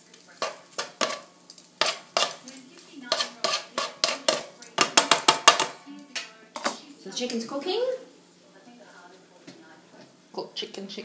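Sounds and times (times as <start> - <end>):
utensil scraping frying pan: 0.0 - 8.3.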